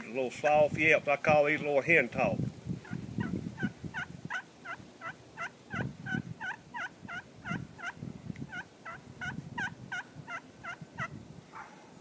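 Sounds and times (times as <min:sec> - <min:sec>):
turkey call hen yelps: 0:03.2 - 0:11.7.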